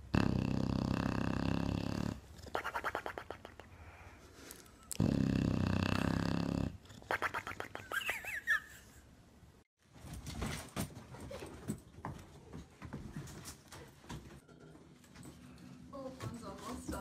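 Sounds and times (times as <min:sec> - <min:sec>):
dog snoring: 0:00.0 - 0:02.4, 0:04.9 - 0:06.8.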